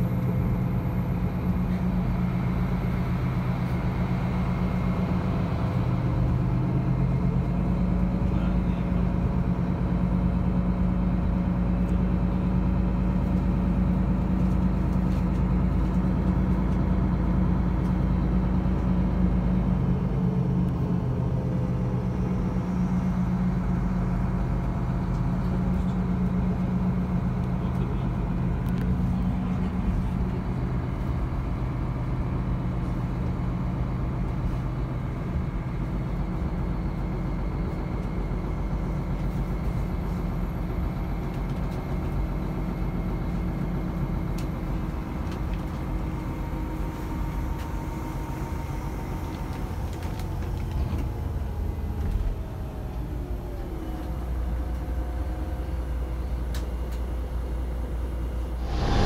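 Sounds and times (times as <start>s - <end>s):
vehicle engine hum from inside cabin: 0.0s - 59.0s
high engine whine: 16.2s - 34.2s, 58.4s - 59.0s.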